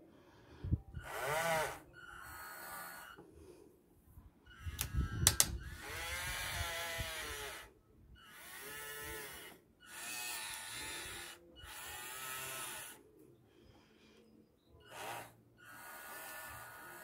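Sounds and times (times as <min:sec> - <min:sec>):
electric motors whining: 0:01.0 - 0:03.2, 0:04.5 - 0:13.0, 0:14.8 - 0:17.0
sharp click: 0:04.8 - 0:05.6.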